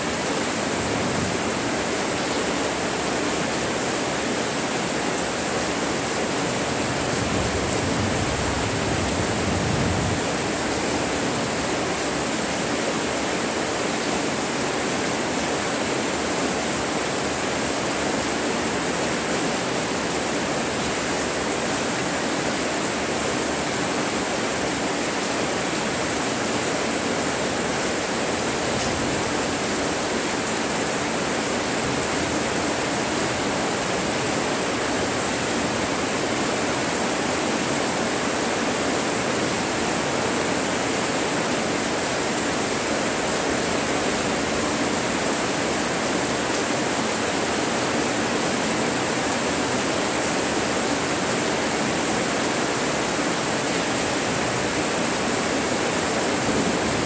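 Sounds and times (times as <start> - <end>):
heavy rain falling: 0.0 - 57.0.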